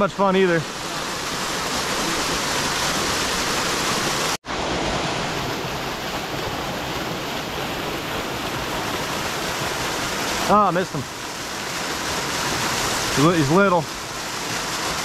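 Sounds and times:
water pouring over small waterfall: 5.0 - 15.0.

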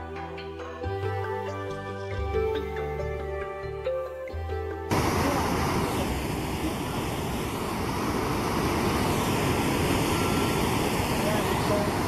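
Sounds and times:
water rushing over boulders: 4.9 - 12.0.

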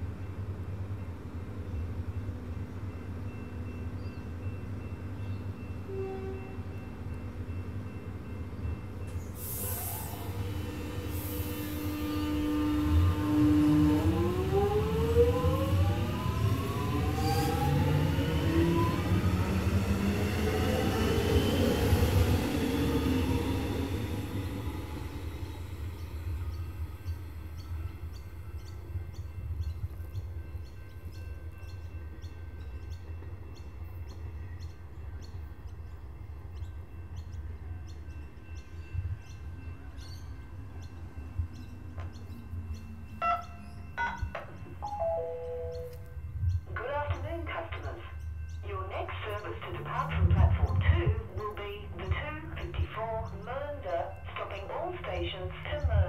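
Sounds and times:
train traction motors whining: 7.1 - 28.2.

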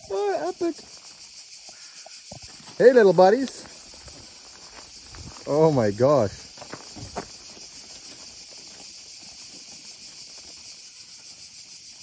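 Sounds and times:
cicadas chorus: 0.0 - 12.0.

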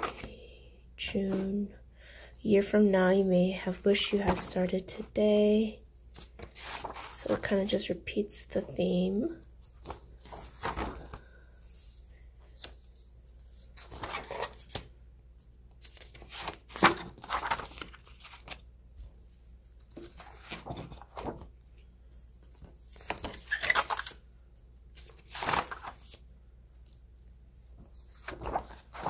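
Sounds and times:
paper pages turning: 6.1 - 7.5, 9.6 - 11.4, 12.4 - 21.6, 22.4 - 24.3, 24.9 - 27.0, 27.8 - 29.0.

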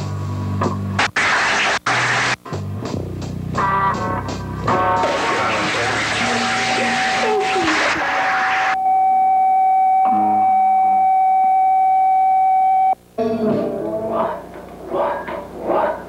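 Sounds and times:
noise hiss: 0.0 - 8.8.

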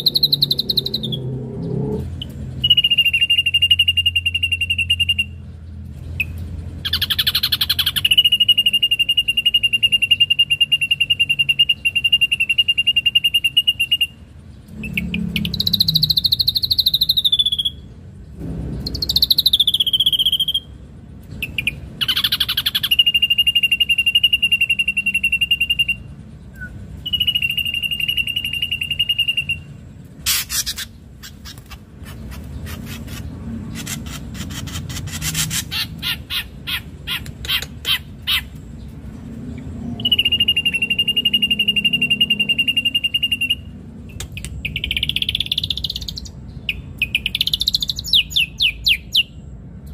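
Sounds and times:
bird whistling song: 0.0 - 5.4, 6.2 - 17.9, 18.8 - 20.8, 21.4 - 31.7, 39.9 - 49.4.

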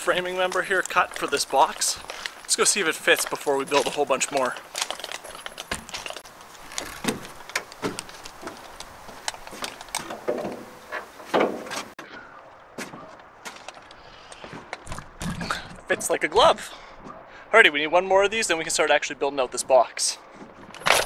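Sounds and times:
tools jingling on tool belt: 0.1 - 7.5, 20.7 - 21.0
knocks and clunks in truck bed: 6.8 - 8.1, 10.0 - 12.0.

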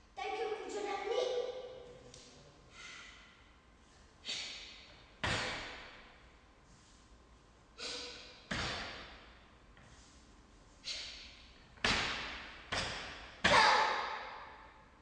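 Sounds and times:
sharp karate hits echoing: 4.3 - 6.2, 7.8 - 9.4, 10.9 - 15.0.

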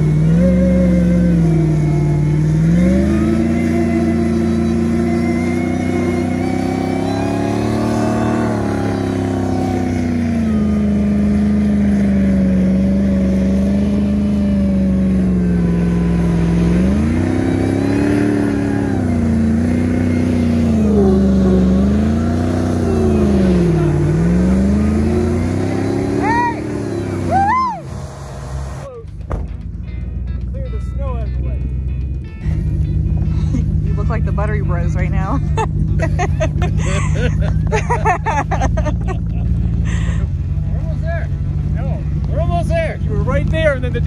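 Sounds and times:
engine revving hard: 0.0 - 28.9.

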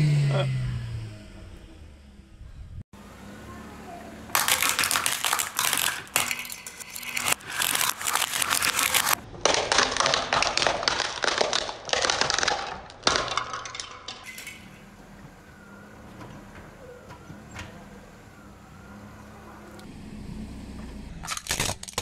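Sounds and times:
tyre crunching plastic plates: 4.3 - 14.6
plastic shards snapping and clinking: 4.3 - 14.7, 21.2 - 22.0.

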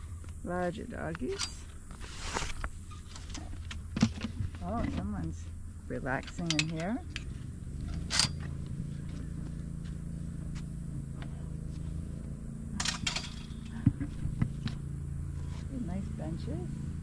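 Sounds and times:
steady low hum: 0.0 - 17.0
gate rattling: 6.1 - 9.2, 12.7 - 15.0
metal gate latch clinking: 6.3 - 7.3, 7.9 - 8.5, 12.8 - 13.7.

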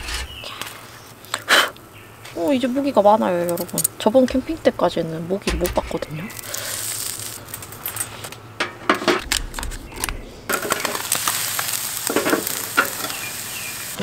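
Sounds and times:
sharp crackles and clicks: 5.6 - 8.4, 9.2 - 14.0
fat sizzling on hot coals: 6.1 - 8.3, 9.3 - 14.0.

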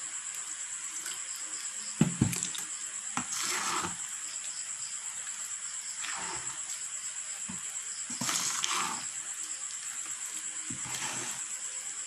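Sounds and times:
fork stirring sticky batter: 3.2 - 4.1, 6.0 - 6.8, 7.5 - 11.6.

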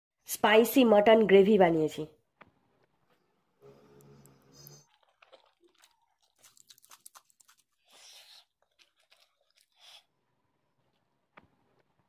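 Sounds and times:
person chewing food: 3.9 - 12.0.

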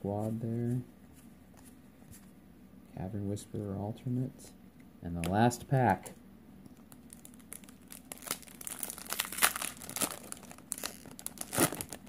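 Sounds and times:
foil wrapper crinkling: 6.9 - 12.0.

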